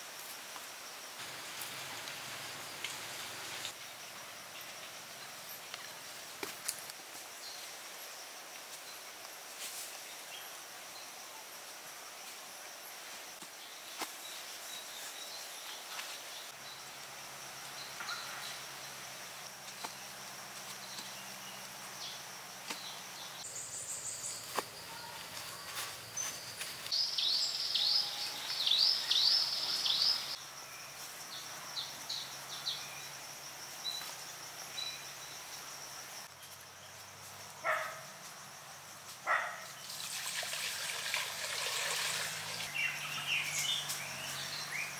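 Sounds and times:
high insect drone: 0.0 - 44.9
bird chirping: 20.8 - 30.4, 42.5 - 44.9.

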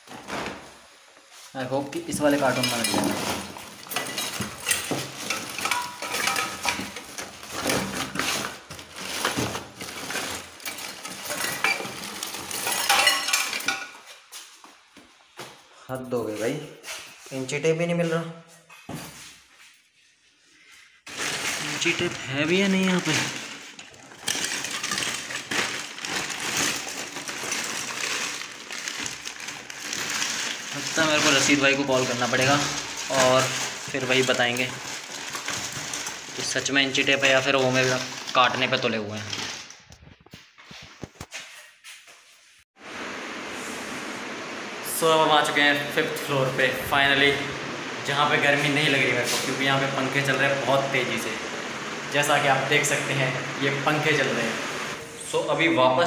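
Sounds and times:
plastic bags crinkling: 0.0 - 14.1, 21.1 - 41.3, 45.0 - 55.0
plastic sheeting rustling: 0.0 - 14.9, 19.1 - 56.0
cables and parts clattering: 1.9 - 14.3, 21.1 - 41.6.

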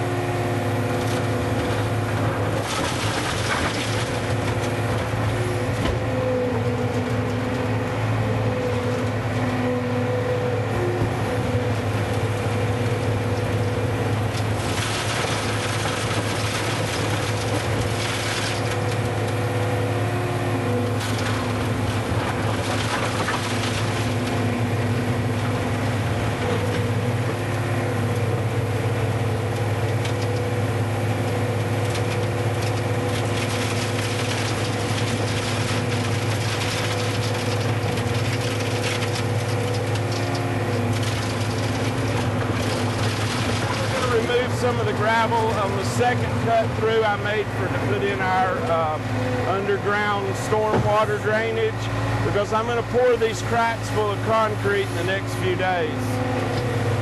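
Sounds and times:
skid steer engine running: 0.0 - 57.0
stones clicking and crunching: 31.8 - 45.6.

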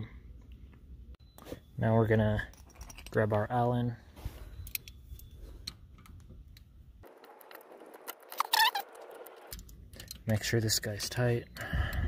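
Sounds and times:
short high squeak: 8.3 - 9.3
metallic clicks of allen key: 9.5 - 10.3.

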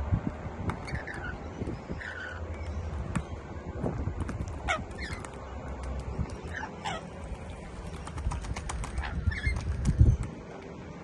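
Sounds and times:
birds splashing in water: 4.1 - 10.6.

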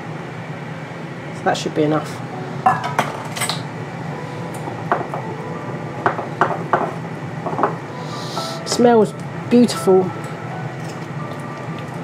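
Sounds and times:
air fryer humming: 0.0 - 12.0.

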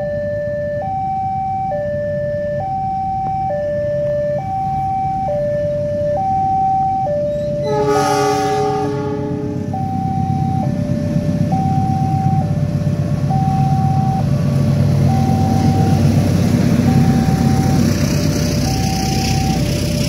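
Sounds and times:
diesel locomotive rumble: 0.0 - 20.0
level crossing alarm two-tone: 0.0 - 20.0.

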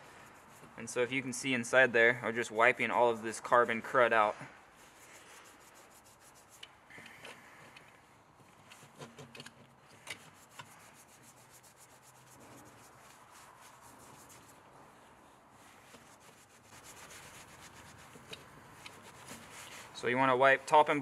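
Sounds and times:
rag rubbing metal: 15.7 - 20.0.

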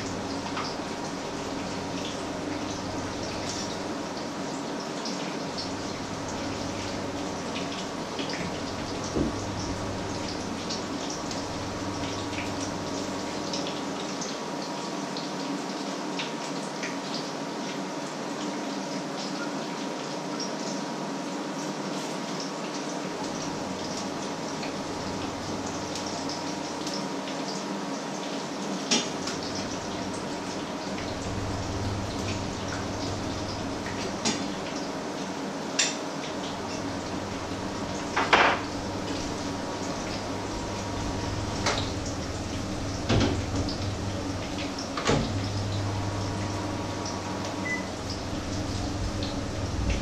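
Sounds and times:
low hum: 30.9 - 34.7, 36.7 - 50.0.

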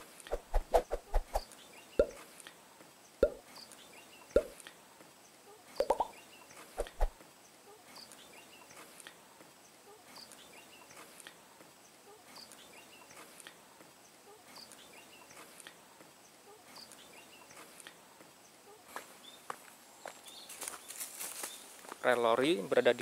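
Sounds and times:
footsteps on gravel: 18.9 - 22.2.

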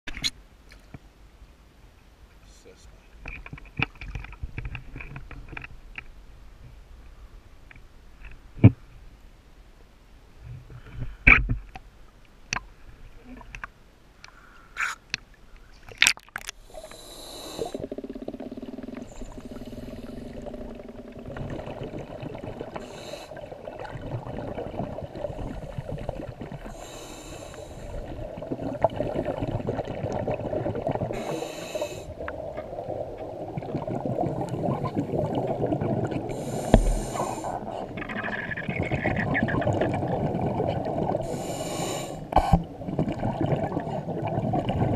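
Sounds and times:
bubbly exhales: 16.1 - 44.9
regulator inhale hiss: 16.6 - 17.9, 19.1 - 20.4, 22.8 - 23.4, 26.7 - 28.1, 31.2 - 32.2, 36.3 - 37.7, 41.2 - 42.7.

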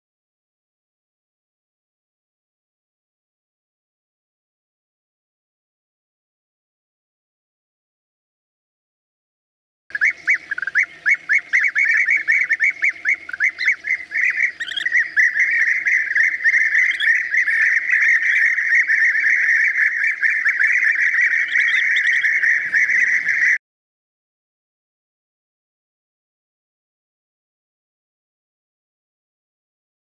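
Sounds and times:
birds chirping and chattering: 9.9 - 23.6.

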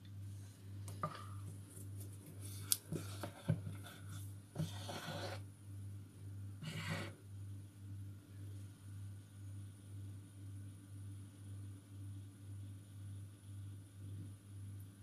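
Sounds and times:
ladle scraping plastic bowls: 2.9 - 5.4.

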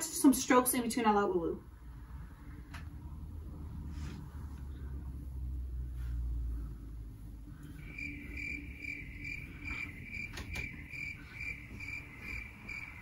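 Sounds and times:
cricket chirping: 7.8 - 13.0.

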